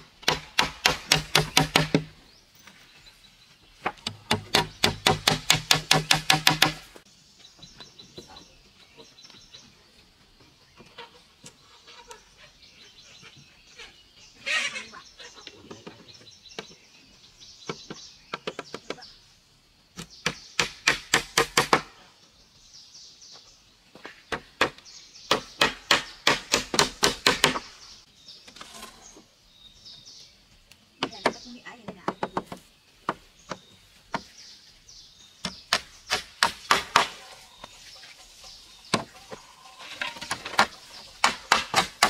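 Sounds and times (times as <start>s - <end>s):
hammer driving nails into wood: 0.2s - 2.1s, 4.0s - 6.9s, 20.2s - 21.9s, 24.6s - 27.7s.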